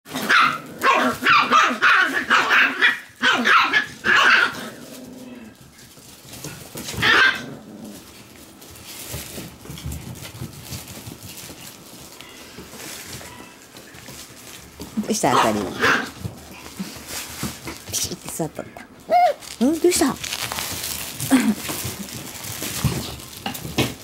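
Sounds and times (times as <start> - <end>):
puppies barking: 0.1 - 5.5, 6.9 - 7.7, 15.2 - 16.4.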